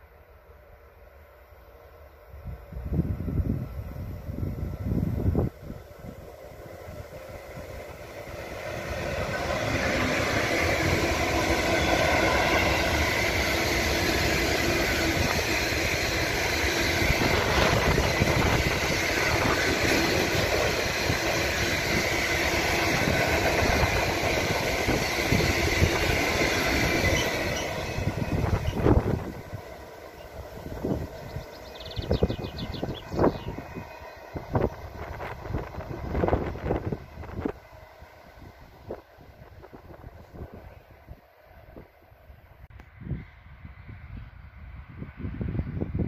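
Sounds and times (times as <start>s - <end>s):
freight train wheels on rails: 0.0s - 46.0s.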